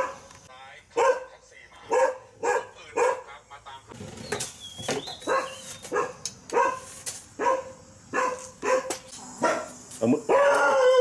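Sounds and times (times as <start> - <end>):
dog barking: 0.0 - 0.3, 1.0 - 3.4, 5.2 - 11.0.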